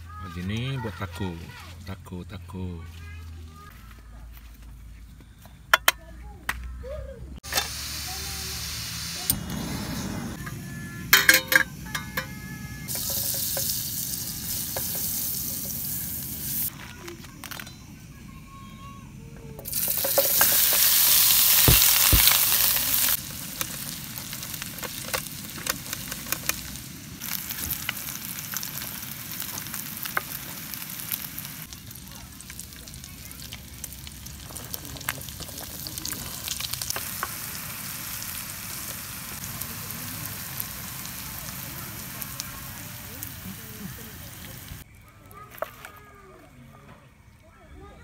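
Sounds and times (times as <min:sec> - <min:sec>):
meat sizzling in butter: 0:07.4 - 0:09.9, 0:12.9 - 0:16.7, 0:19.7 - 0:44.8.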